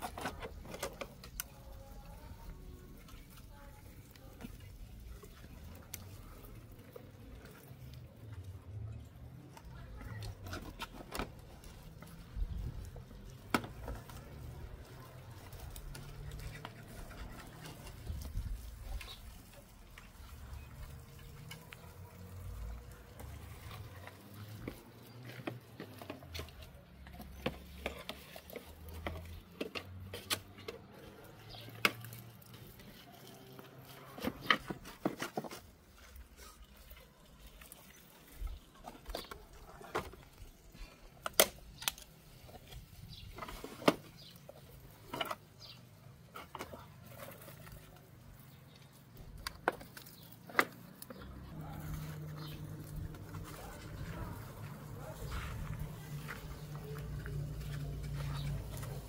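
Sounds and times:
stems snapping and being cut: 12.8 - 35.7, 41.2 - 44.4.

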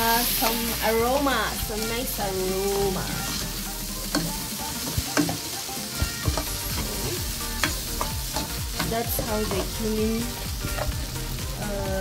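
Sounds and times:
rice sizzling in a pan: 0.0 - 12.0
spatula scraping a pan: 2.9 - 11.4.

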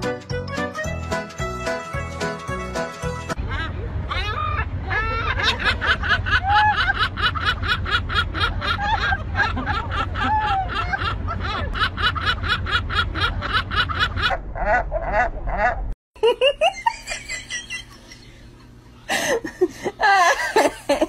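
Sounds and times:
gull laughing call: 3.3 - 15.9
low rumble: 3.3 - 16.0.

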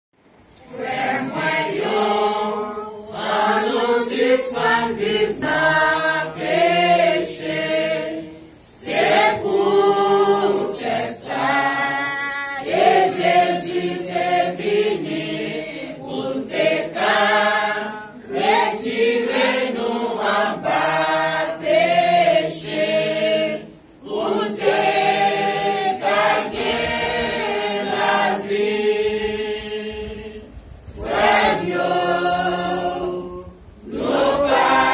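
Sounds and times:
congregation singing a hymn: 0.4 - 34.9.

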